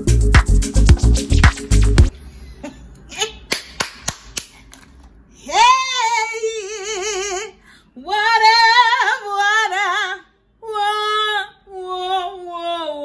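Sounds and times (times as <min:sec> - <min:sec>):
woman singing wordless high notes: 0:05.4 - 0:13.0.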